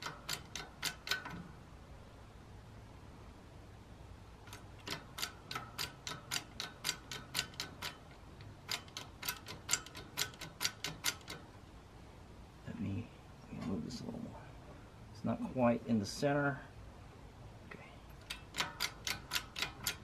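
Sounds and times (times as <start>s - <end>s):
hydraulic pump metallic clicks: 0.0s - 1.5s, 4.5s - 11.5s, 18.2s - 20.0s.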